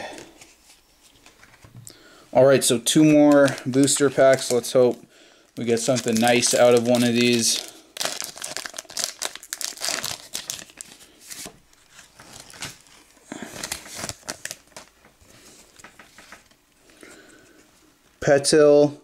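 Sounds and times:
foil wrapper tearing and crinkling: 3.3 - 5.0, 5.6 - 14.9.

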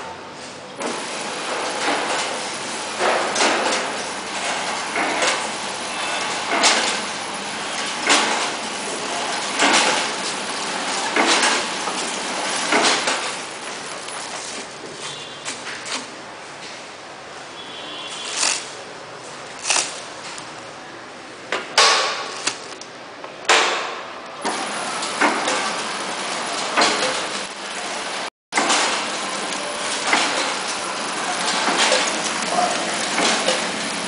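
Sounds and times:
packaging machine clattering: 0.8 - 14.8, 19.4 - 20.5, 24.4 - 34.0.

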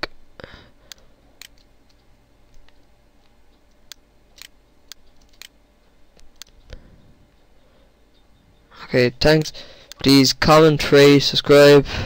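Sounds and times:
low room hiss: 0.0 - 12.0
computer mouse clicks: 0.9 - 5.6, 6.2 - 6.8.

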